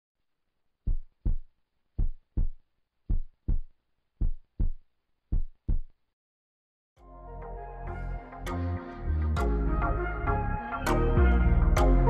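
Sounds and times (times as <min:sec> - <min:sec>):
heartbeat thumps: 0:00.9 - 0:05.9.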